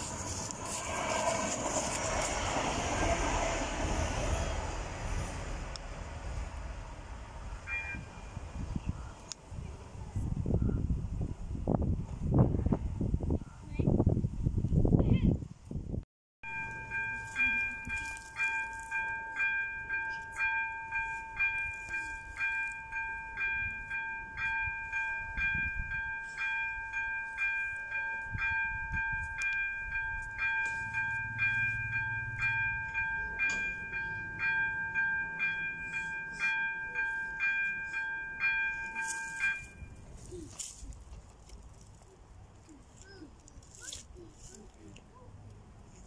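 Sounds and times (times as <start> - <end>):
electronic level crossing bell: 7.6 - 8.2, 16.5 - 40.4.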